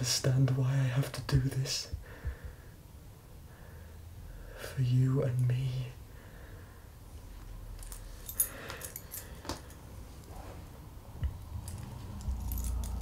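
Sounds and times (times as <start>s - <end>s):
low hum: 5.3s - 13.0s.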